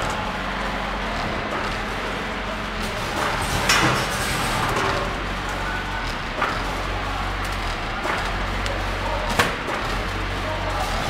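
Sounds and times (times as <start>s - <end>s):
packing machine hum: 0.0s - 11.0s.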